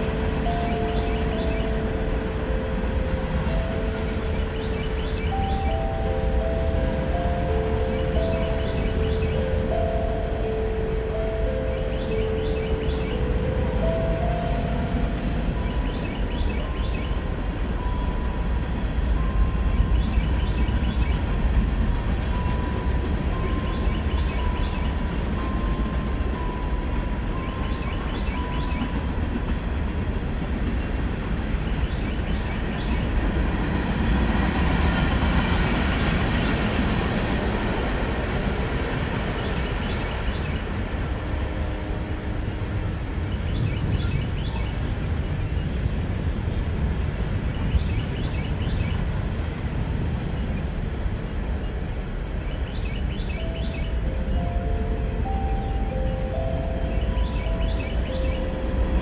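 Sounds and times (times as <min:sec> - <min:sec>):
train wagons rumbling: 0:00.0 - 0:59.0
faint high tone: 0:53.4 - 0:59.0.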